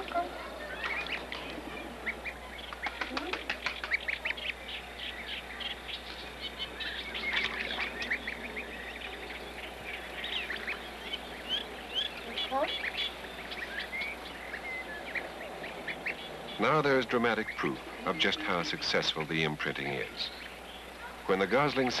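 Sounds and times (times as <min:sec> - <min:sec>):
goslings peeping: 0:00.0 - 0:22.0.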